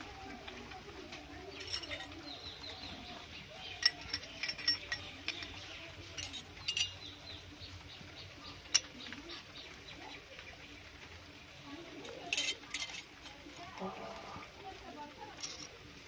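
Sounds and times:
toy metal cookware clinking: 1.5 - 2.8, 3.6 - 7.2, 12.0 - 13.8, 15.4 - 15.8.

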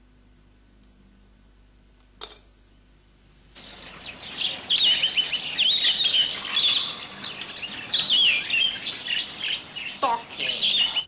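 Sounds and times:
songbirds chirping: 3.6 - 11.0.

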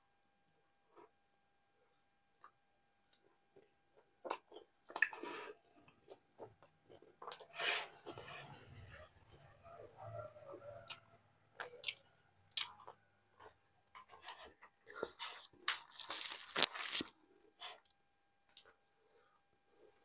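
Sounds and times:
chewing: 2.4 - 18.8
bread tearing crackles: 15.5 - 17.2.

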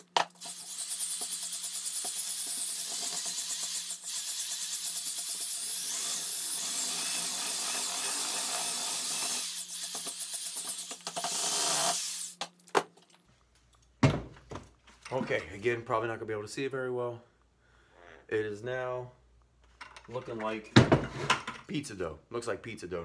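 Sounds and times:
electric drill mixing: 0.0 - 12.4.

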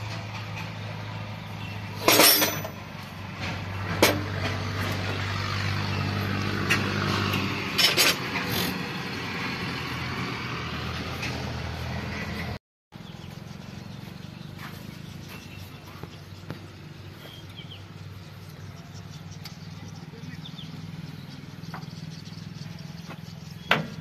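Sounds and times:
diesel tractor engine idling: 0.0 - 24.0
sharp metallic clinks: 2.0 - 3.0.

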